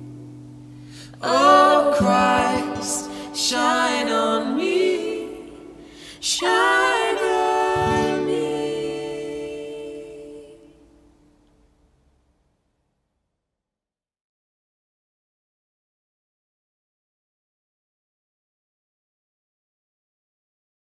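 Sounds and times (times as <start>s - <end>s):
acoustic guitar: 0.0s - 12.0s
man and woman singing in harmony: 1.1s - 10.9s.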